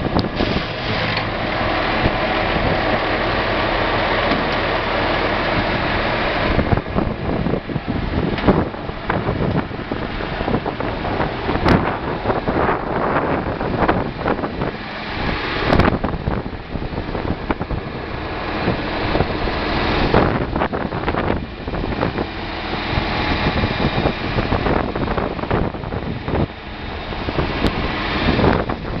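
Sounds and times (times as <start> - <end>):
diesel tractor engine running: 0.0 - 29.0
wind buffeting microphone: 0.0 - 29.0.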